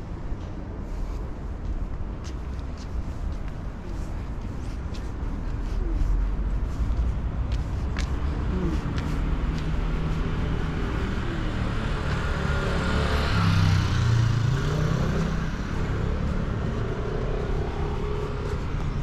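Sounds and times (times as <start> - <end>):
street traffic noise: 0.0 - 19.0
motor scooter passing: 9.7 - 19.0.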